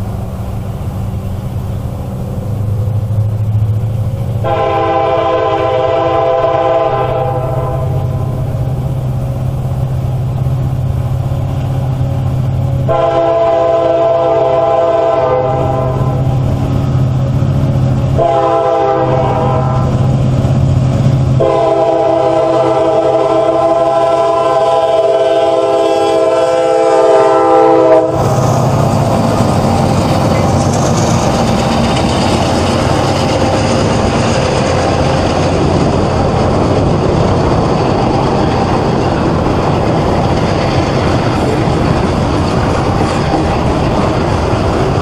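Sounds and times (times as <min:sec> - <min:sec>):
freight cars rumbling and clattering: 0:00.0 - 0:24.4, 0:28.0 - 0:45.0
locomotive engine hum: 0:00.0 - 0:45.0
locomotive air horn: 0:04.4 - 0:08.4, 0:12.8 - 0:16.3, 0:18.1 - 0:20.0, 0:21.4 - 0:28.3.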